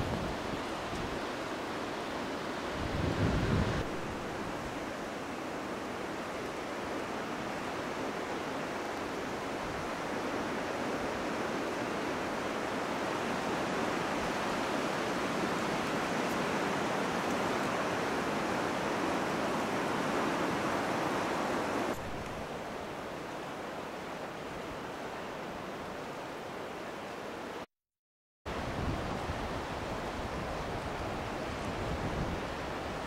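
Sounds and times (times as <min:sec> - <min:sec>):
small waves washing on sand: 0:00.0 - 0:25.1
wind: 0:00.0 - 0:27.7, 0:28.5 - 0:33.0.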